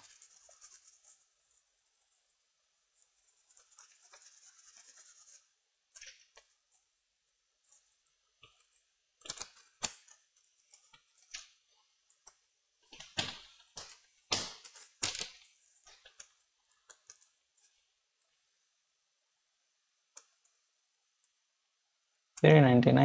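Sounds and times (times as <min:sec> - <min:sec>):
small clicks and scrapes: 0:00.0 - 0:18.4.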